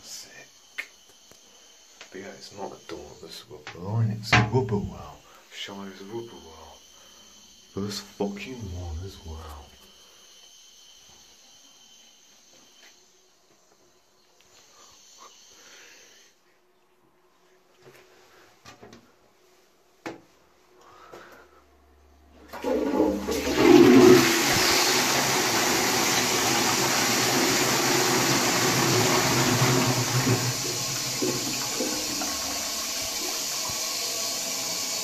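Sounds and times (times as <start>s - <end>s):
toilet flushing water rush: 22.4s - 35.0s.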